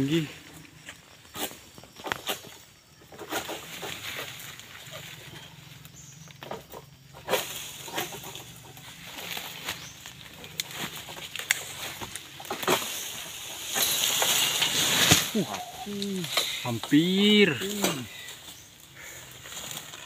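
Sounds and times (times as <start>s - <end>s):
palm fronds rustling: 0.0s - 20.0s
sickle knocking on fronds: 9.1s - 18.1s.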